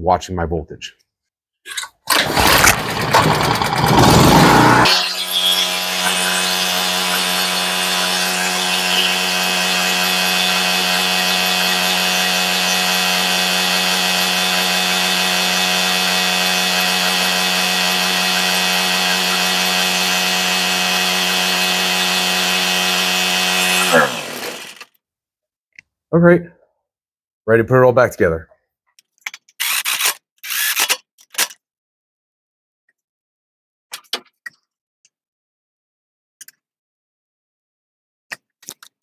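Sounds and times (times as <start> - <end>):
generator engine running: 2.1 - 24.8.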